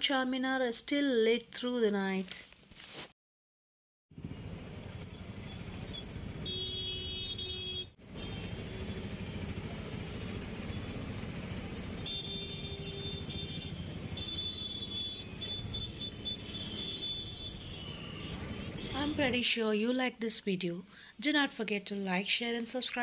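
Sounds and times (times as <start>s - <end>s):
auto rickshaw and motorcycle engines: 4.2s - 20.0s
vehicle horn: 6.4s - 9.2s, 11.8s - 19.2s.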